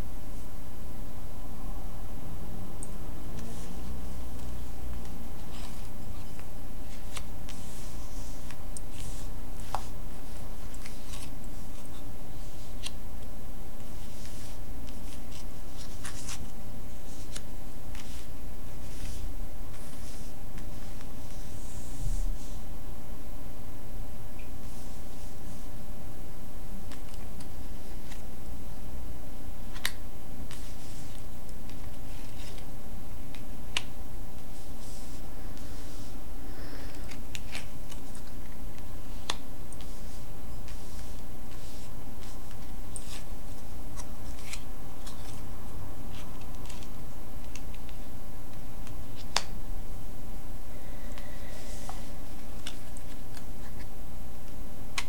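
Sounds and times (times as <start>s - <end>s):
steady low hum: 0.0s - 55.0s
cards shuffling on cloth: 3.4s - 13.0s, 13.8s - 22.6s, 29.7s - 32.7s, 34.4s - 45.5s
cards swishing on cloth: 13.8s - 22.6s, 39.8s - 45.4s.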